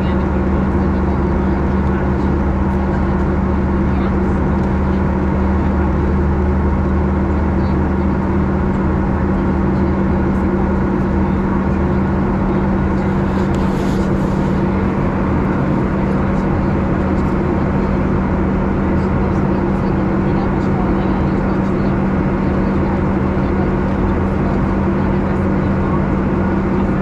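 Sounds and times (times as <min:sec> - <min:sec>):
airplane engines droning: 0:00.0 - 0:27.0
constant low hum: 0:00.0 - 0:27.0
rushing airflow: 0:10.6 - 0:20.3.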